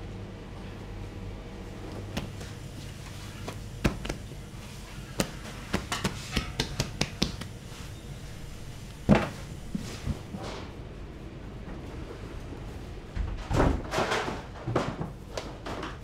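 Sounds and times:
steady kitchen hum: 0.0 - 16.0
hands slapping bread dough: 1.9 - 7.9.

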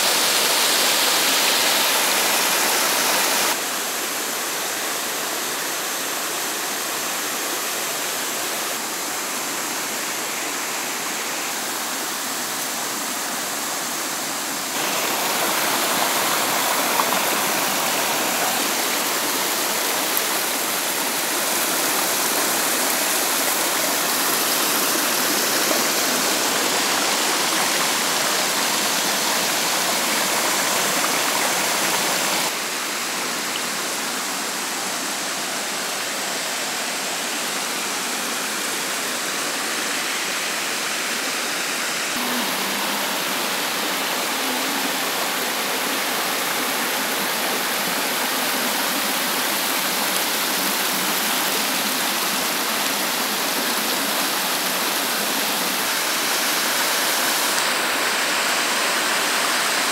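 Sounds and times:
water splashing over rocks: 14.6 - 32.7.

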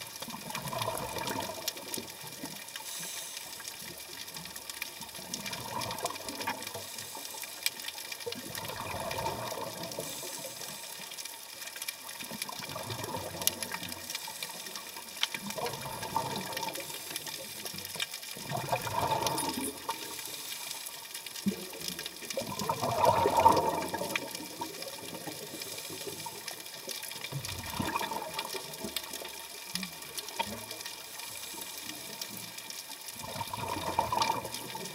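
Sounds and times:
bubbles gurgling underwater: 0.0 - 2.6, 4.9 - 7.0, 8.2 - 10.8, 12.2 - 14.2, 15.3 - 20.3, 21.4 - 26.5, 27.1 - 31.0, 33.1 - 34.9
faint hiss: 2.4 - 4.6, 6.3 - 8.3, 9.6 - 12.4, 14.0 - 15.2, 19.4 - 21.8.

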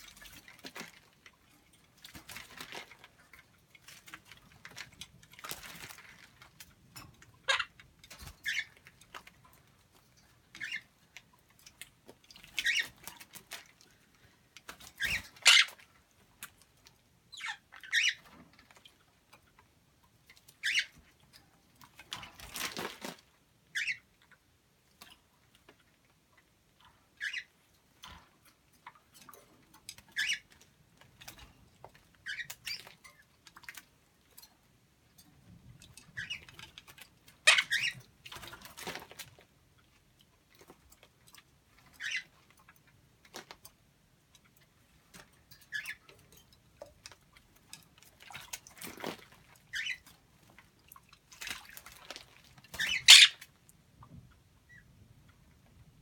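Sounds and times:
parrot high squeaks: 15.0 - 15.8, 52.8 - 53.4.

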